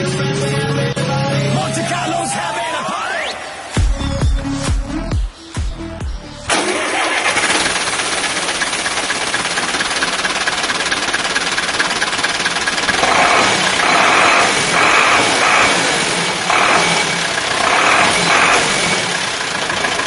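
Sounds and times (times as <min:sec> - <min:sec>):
electronic dance music: 0:00.0 - 0:06.5
tractor diesel engine running: 0:06.5 - 0:20.0.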